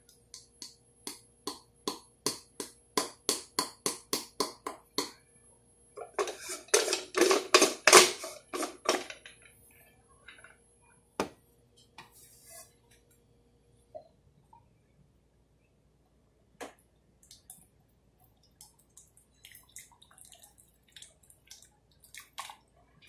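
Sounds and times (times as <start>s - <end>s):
grinder rattling and scraping: 6.2s - 9.2s.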